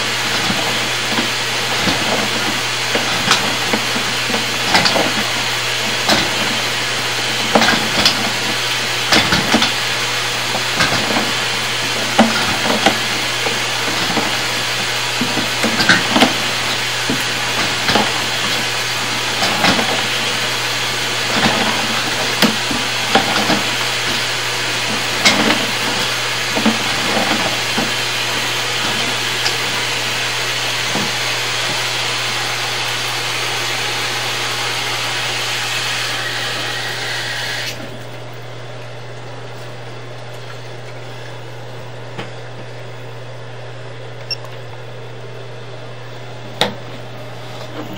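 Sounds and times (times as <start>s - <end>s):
low electrical hum: 0.0s - 47.9s
cable knocking and scraping in pipe: 10.5s - 29.9s.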